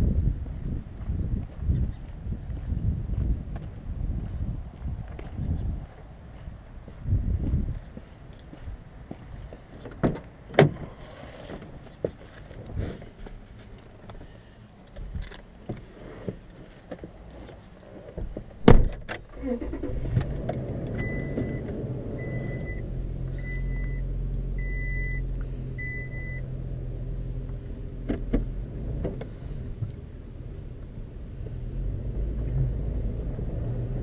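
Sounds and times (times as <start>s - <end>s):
truck door shutting: 18.6s - 20.4s.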